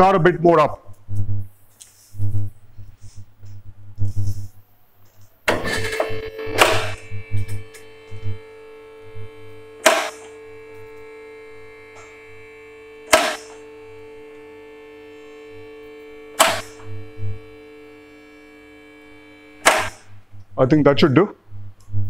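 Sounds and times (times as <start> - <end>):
hydraulic pump humming: 5.3 - 20.3.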